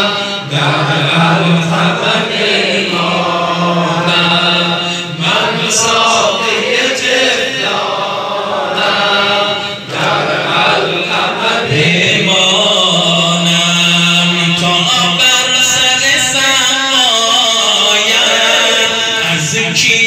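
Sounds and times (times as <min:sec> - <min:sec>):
men chanting: 0:00.0 - 0:20.0.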